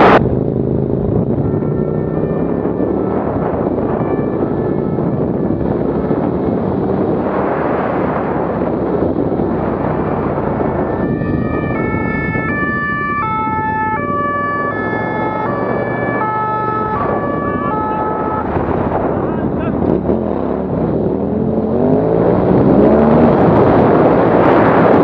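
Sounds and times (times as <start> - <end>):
wind and vehicle noise: 0.0 - 25.0
two-tone siren: 1.2 - 6.3, 9.8 - 19.2.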